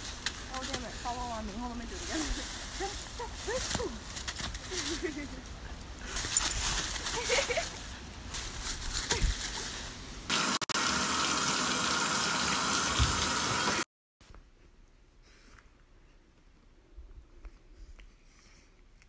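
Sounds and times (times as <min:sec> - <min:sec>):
dry leaves crunching under paws: 0:00.0 - 0:10.2
bathtub spout running water: 0:10.3 - 0:13.9.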